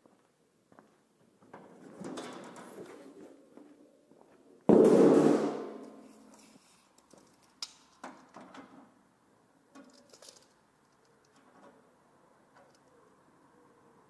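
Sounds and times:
tape measure clicks and rustles: 0:05.9 - 0:08.0, 0:09.8 - 0:11.4.

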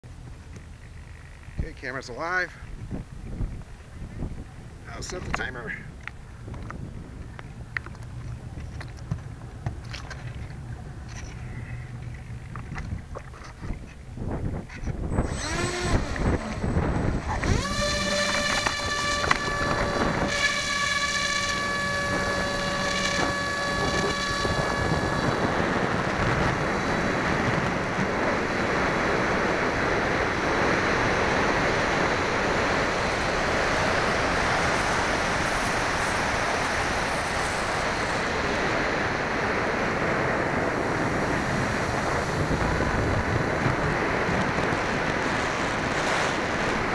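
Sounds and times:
wind rush on microphone: 0:01.4 - 0:46.9
model plane motor whining: 0:14.8 - 0:46.9.

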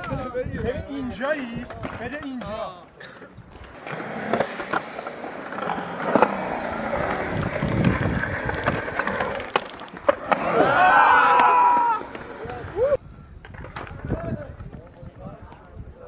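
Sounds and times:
skateboard wheels rolling on concrete: 0:00.0 - 0:16.0
skateboard clacking on concrete: 0:01.6 - 0:02.7, 0:03.5 - 0:12.8
onlookers shouting and cheering: 0:10.2 - 0:13.0.

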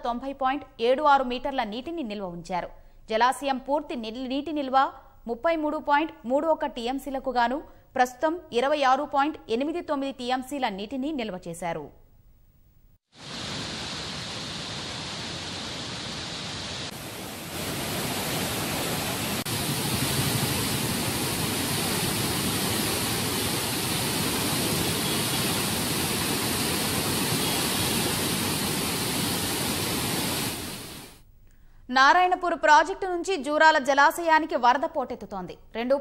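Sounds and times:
water rushing through spillway: 0:13.2 - 0:31.1.

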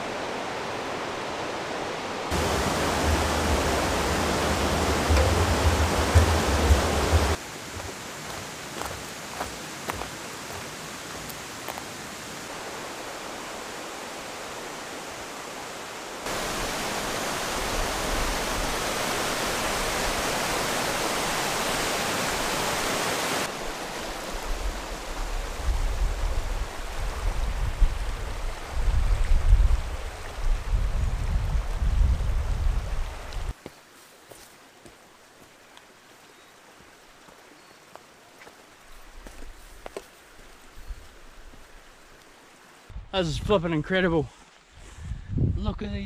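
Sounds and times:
steady outdoor rushing noise: 0:00.0 - 0:11.8
low rumble in gusts: 0:02.3 - 0:07.4.

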